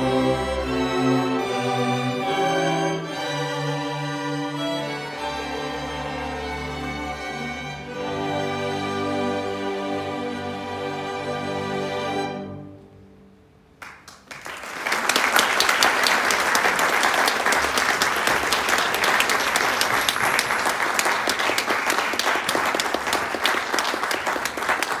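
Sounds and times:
audience applause: 13.8 - 25.0.

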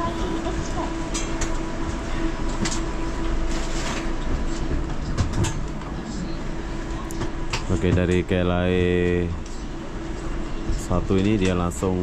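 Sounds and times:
train electric hum and rumble: 0.0 - 12.0.

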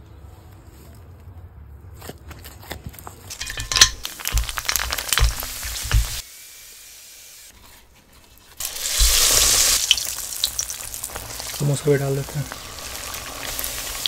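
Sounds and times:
food sizzling in hot oil: 3.3 - 7.8, 8.4 - 14.0.

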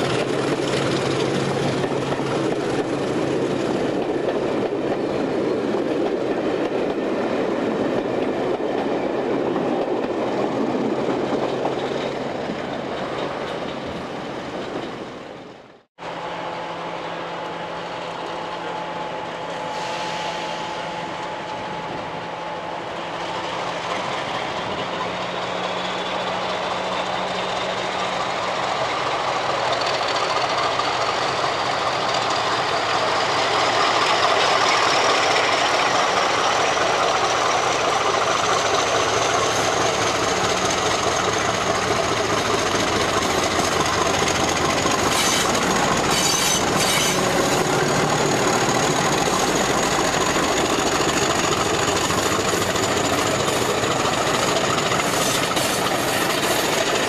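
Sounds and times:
diesel locomotive engine working hard: 0.0 - 57.0
wheel clacks over rail joints: 33.6 - 57.0.

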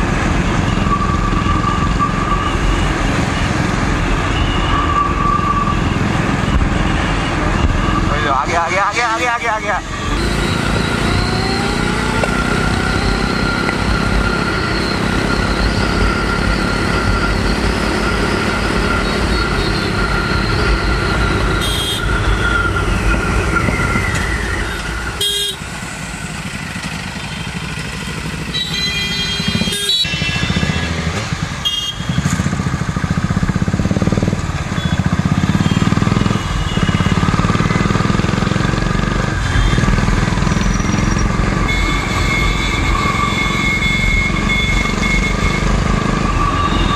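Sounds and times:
vehicle horn honking: 21.6 - 22.1, 25.2 - 25.6, 28.5 - 32.3, 39.4 - 40.0, 41.6 - 45.8
motorcycle engine running: 26.2 - 41.1.

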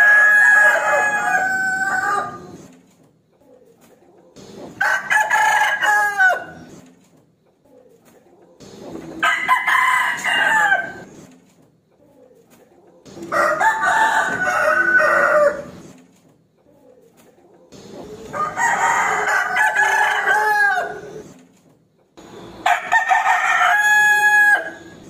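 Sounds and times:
rooster crowing: 0.0 - 2.6, 4.8 - 6.7, 9.2 - 11.1, 13.3 - 15.8, 18.3 - 21.2, 22.6 - 25.0.

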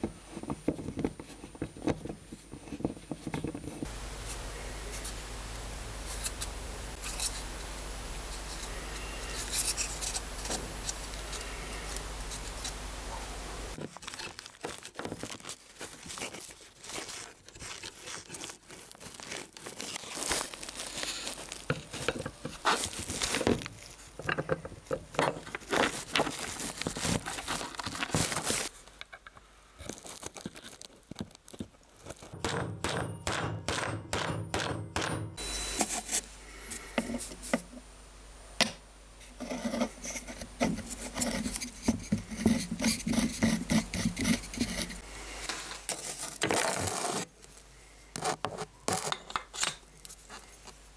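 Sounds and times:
steady low hum: 3.8 - 13.8.

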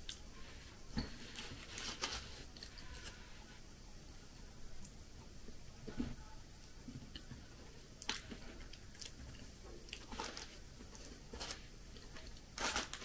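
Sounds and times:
plastic bag crinkling: 10.0 - 13.0.

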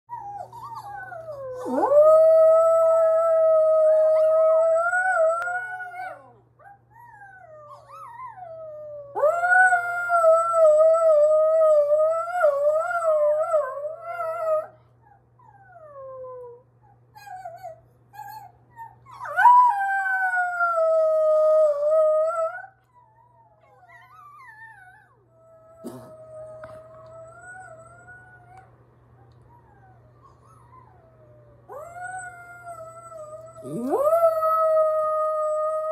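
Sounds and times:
dog howling: 0.2 - 6.4, 29.8 - 35.9.

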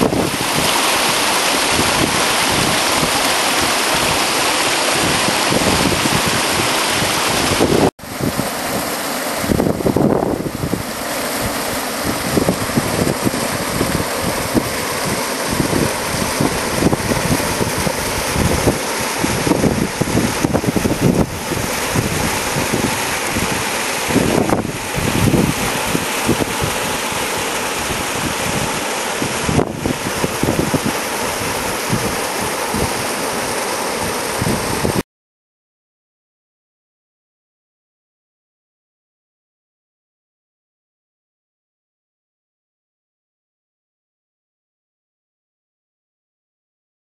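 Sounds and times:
stream rushing over rocks: 0.0 - 35.0
wind buffeting microphone: 0.0 - 35.0.

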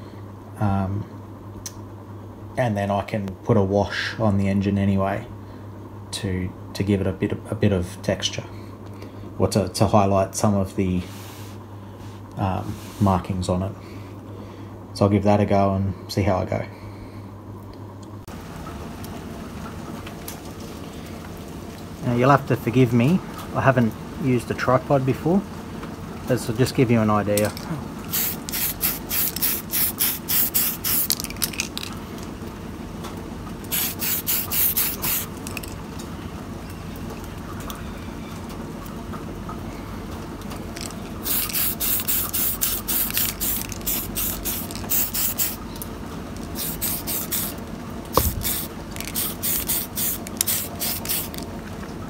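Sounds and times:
aerosol spray can hissing: 28.1 - 31.3, 33.7 - 35.3, 41.2 - 45.6, 46.5 - 47.6, 48.2 - 51.4.

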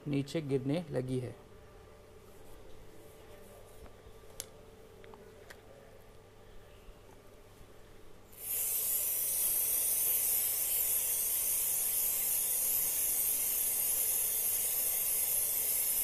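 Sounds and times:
aerosol spray hissing: 8.4 - 16.0.

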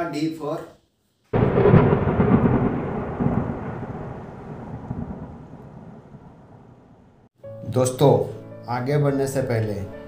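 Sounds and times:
rolling thunder rumble: 1.4 - 7.3.

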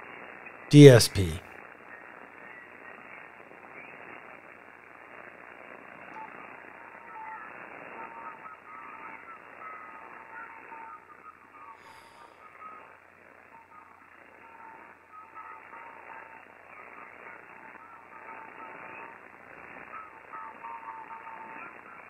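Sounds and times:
faint voice over radio: 0.7 - 1.4.

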